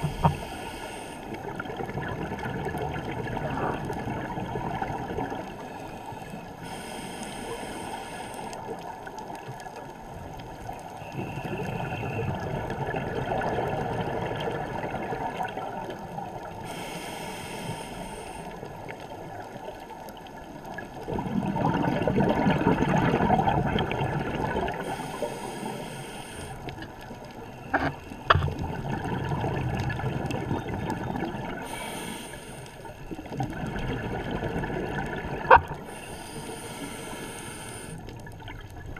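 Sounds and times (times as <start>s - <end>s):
regulator inhale hiss: 0.0s - 1.4s, 5.6s - 8.9s, 16.4s - 18.8s, 24.7s - 26.8s, 31.6s - 33.2s, 35.8s - 38.2s
gurgle of exhaled bubbles: 1.4s - 5.6s, 11.1s - 16.5s, 20.7s - 25.0s, 28.3s - 31.8s, 33.2s - 36.0s.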